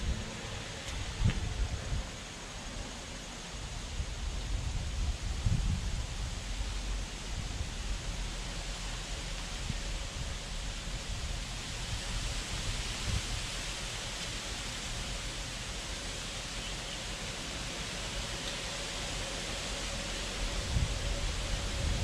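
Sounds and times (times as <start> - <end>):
wind buffeting microphone: 0.0 - 2.2, 3.9 - 8.7, 9.5 - 13.7, 20.2 - 22.0
rustling leaves: 0.0 - 22.0
wind hiss: 0.0 - 22.0.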